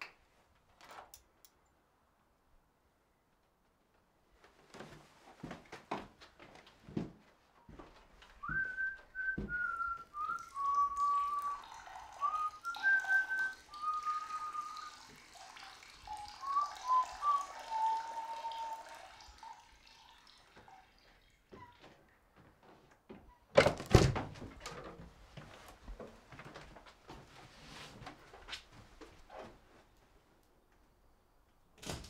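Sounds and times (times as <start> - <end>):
person whistling a slow tune: 8.4 - 15.0, 16.2 - 19.0.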